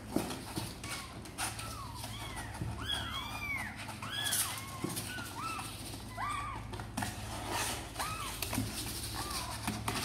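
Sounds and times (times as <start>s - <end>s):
claws scratching cardboard box: 0.0s - 10.0s
kittens meowing: 0.8s - 6.8s, 9.0s - 9.9s.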